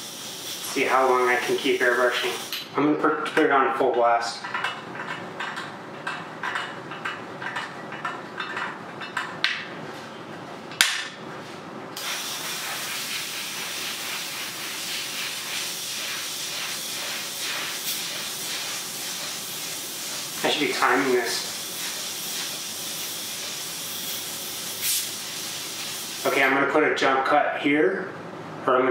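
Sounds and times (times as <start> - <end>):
compressed air hissing: 0.0 - 2.7, 12.0 - 26.6.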